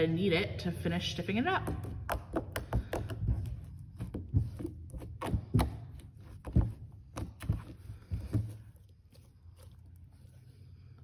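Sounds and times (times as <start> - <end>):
slime thunks and sticky slaps: 1.6 - 7.7.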